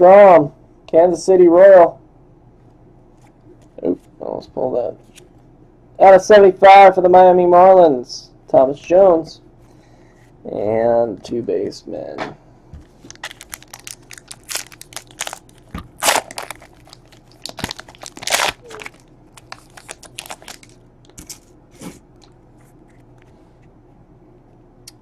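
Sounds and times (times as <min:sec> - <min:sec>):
wrapper tearing and crinkling: 0:13.0 - 0:21.5.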